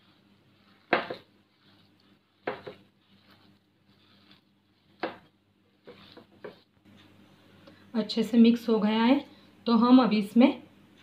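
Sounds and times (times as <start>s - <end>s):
dough pressed against glass: 0.0s - 7.2s
hands squishing dough: 0.0s - 7.2s.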